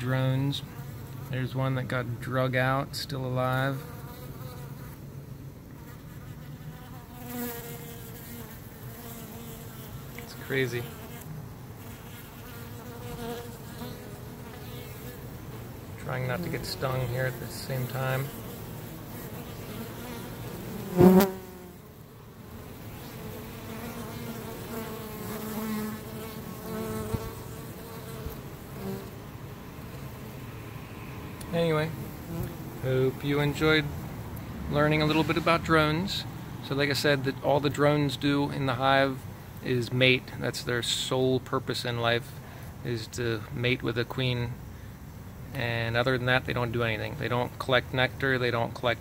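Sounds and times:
bees buzzing: 5.8s - 35.7s.

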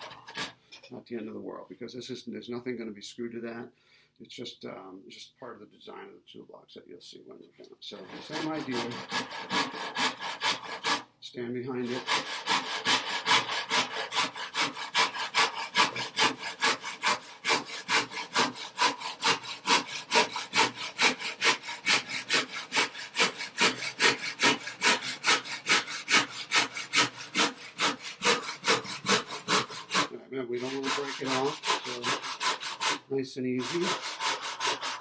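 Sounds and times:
handsaw cutting wood: 0.0s - 0.6s, 7.9s - 11.1s, 11.7s - 35.0s.

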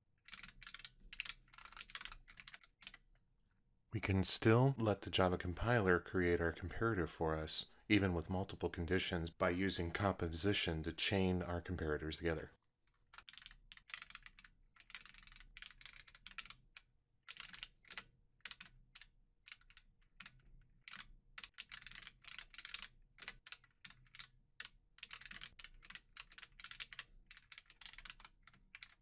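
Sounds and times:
typing on computer keyboard: 0.2s - 3.0s, 12.9s - 29.0s.

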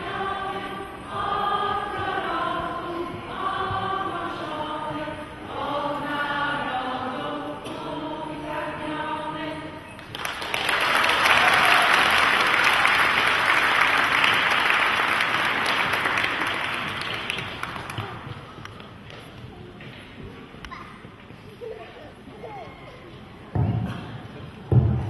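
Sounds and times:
children's choir singing: 0.0s - 10.6s
audience applause: 10.1s - 18.5s.

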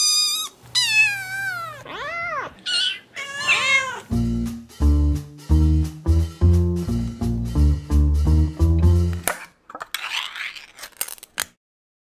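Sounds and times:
kitten meowing: 0.0s - 4.1s
tune with plucked beat: 4.1s - 9.3s.

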